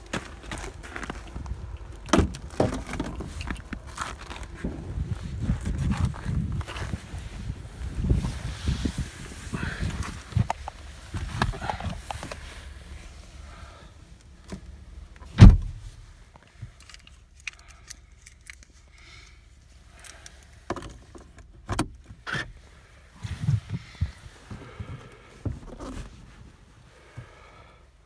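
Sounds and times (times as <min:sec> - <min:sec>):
car keys jangling: 0:16.7 - 0:19.0.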